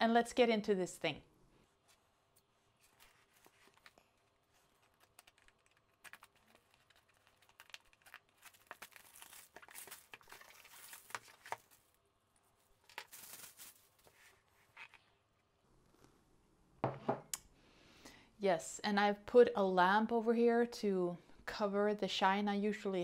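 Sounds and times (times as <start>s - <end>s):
plastic shrink-wrap crinkling and tearing: 2.9s - 11.9s, 12.8s - 14.4s.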